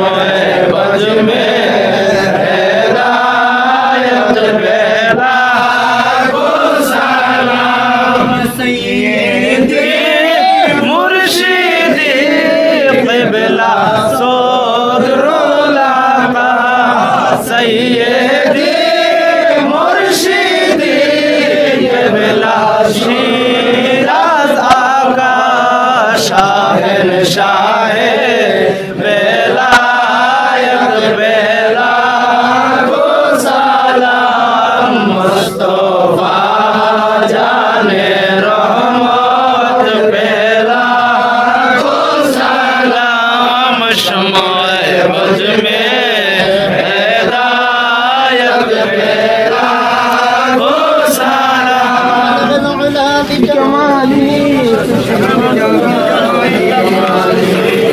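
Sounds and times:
men chanting together: 0.0s - 57.9s.

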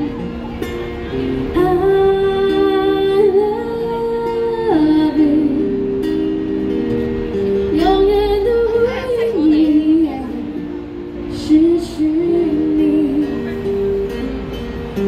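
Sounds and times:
acoustic guitar: 0.0s - 15.0s
woman singing long notes: 1.6s - 5.9s, 7.7s - 10.7s, 11.3s - 13.7s.

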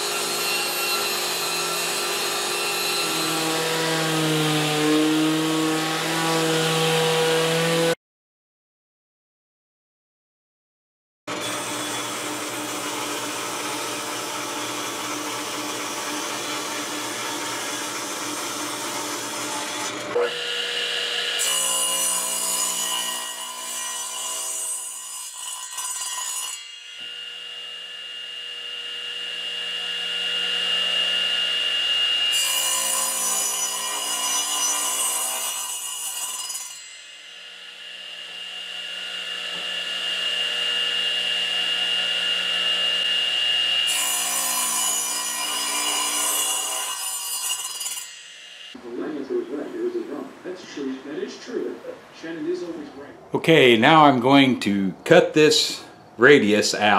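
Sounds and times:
radial arm saw whining: 0.0s - 8.0s, 11.3s - 23.1s, 26.5s - 48.8s
table saw cutting wood: 0.0s - 8.0s, 11.3s - 48.9s.

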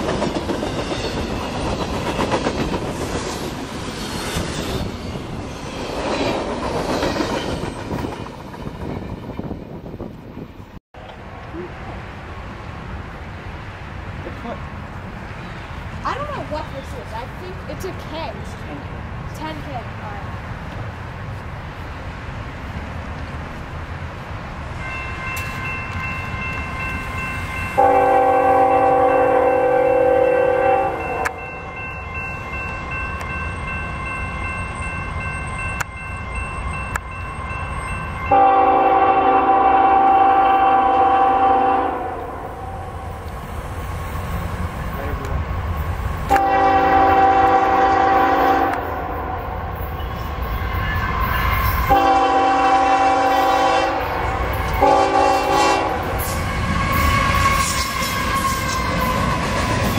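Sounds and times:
train wheels clacking over rail joints: 0.0s - 4.8s
freight train rumbling: 0.0s - 59.9s
locomotive horn chord: 27.8s - 31.3s, 38.3s - 42.8s, 46.3s - 49.6s, 51.9s - 59.2s.

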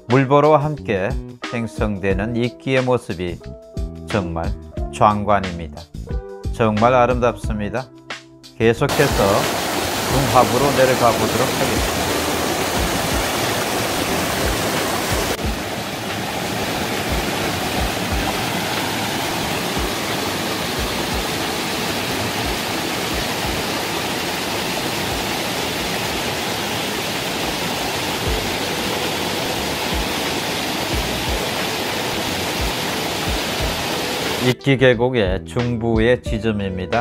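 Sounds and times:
stream rushing over boulders: 8.9s - 34.5s.

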